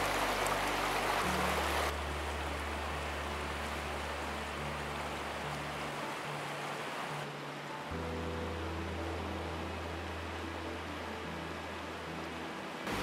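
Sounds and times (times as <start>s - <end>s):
soft background music: 0.0s - 13.0s
steady outdoor hiss: 0.0s - 13.0s
water rushing over rocks: 0.0s - 13.0s.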